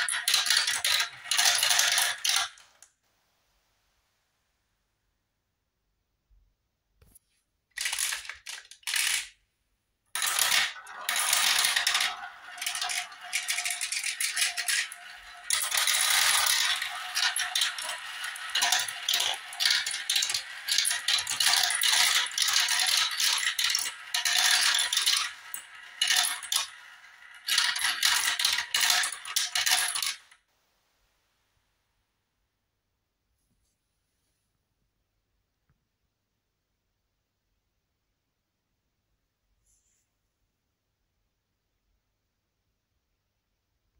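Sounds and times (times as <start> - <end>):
marbles rattling in plastic run: 0.0 - 2.7, 7.8 - 9.3, 10.1 - 30.4.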